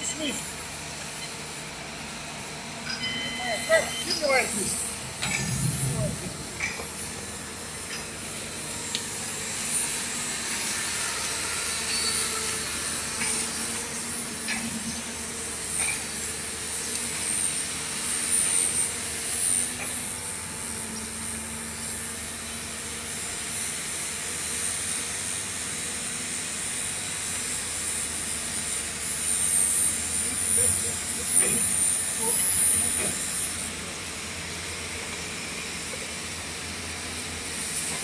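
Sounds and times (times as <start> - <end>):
engine-like hum: 3.0 - 16.0.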